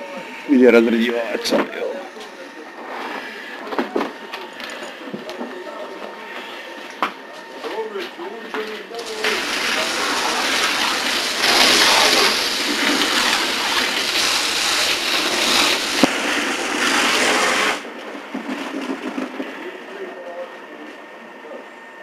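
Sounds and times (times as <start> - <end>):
fire hose spraying water: 9.0 - 17.8.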